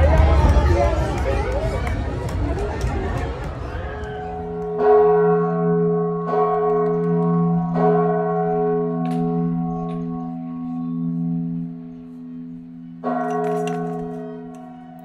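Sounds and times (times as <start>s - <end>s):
church bell tolling: 4.4s - 15.0s.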